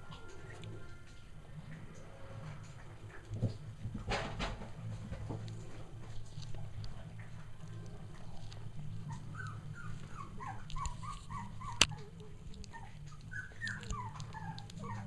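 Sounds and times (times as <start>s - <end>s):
low steady hum: 0.0s - 15.0s
puppies whimpering and yipping: 7.9s - 15.0s.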